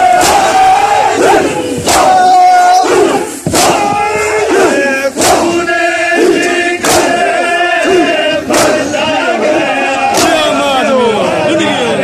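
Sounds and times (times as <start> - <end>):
crowd of men chanting: 0.0 - 12.0
chest-beating slaps: 3.4 - 3.9, 6.4 - 7.2, 8.5 - 8.8.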